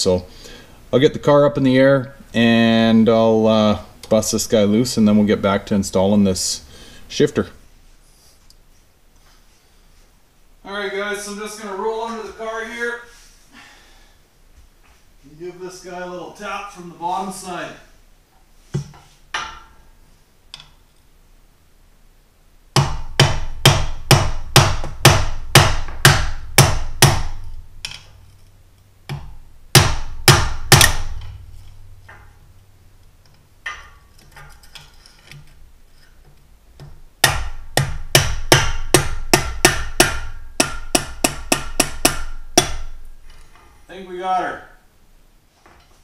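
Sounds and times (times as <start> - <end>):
hammer tapping on metal: 33.6 - 34.1, 36.8 - 43.0.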